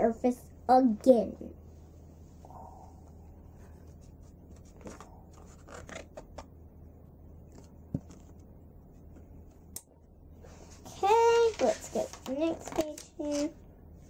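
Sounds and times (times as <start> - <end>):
paper pages rustling: 3.8 - 6.5, 11.2 - 13.6.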